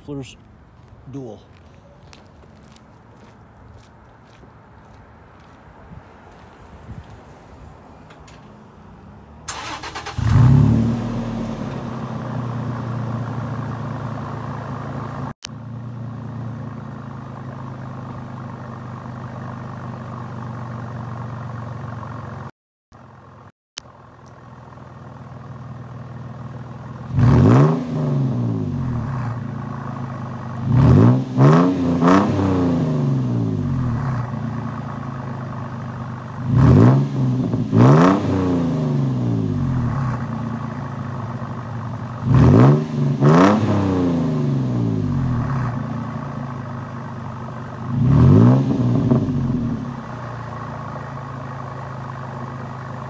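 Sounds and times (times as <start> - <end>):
truck engine starting and idling: 6.3 - 53.0
engine revving in blips: 9.5 - 13.8, 27.0 - 46.3, 47.6 - 50.5.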